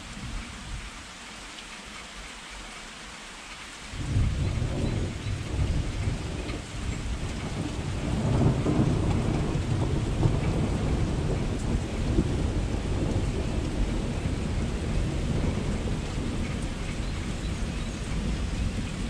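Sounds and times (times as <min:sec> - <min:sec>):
steady rain falling: 0:00.0 - 0:19.0
thunder rumbling: 0:04.0 - 0:19.0.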